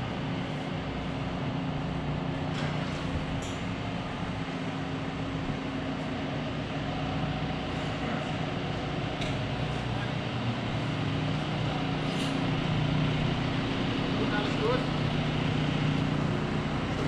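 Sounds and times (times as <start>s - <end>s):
machine humming: 6.4s - 17.0s.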